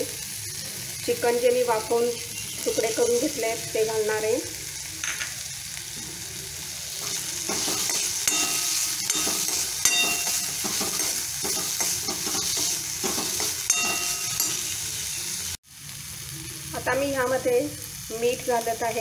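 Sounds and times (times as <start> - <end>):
chicken sizzling in hot oil: 0.0 - 19.0
metal spoon scraping pan: 7.0 - 14.9.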